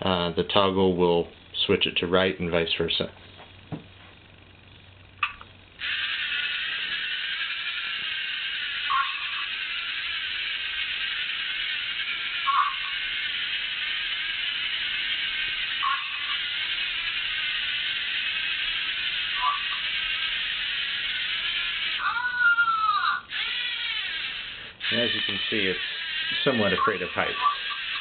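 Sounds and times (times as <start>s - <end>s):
single click: 5.2s - 5.5s
robot motors whirring: 5.8s - 28.0s.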